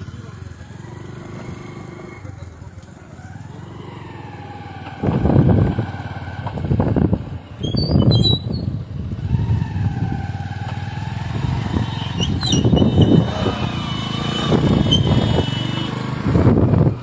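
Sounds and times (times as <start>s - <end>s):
wind buffeting microphone: 5.0s - 10.5s, 11.2s - 13.8s, 14.4s - 15.5s, 16.2s - 17.0s
large vehicle passing: 9.0s - 17.0s.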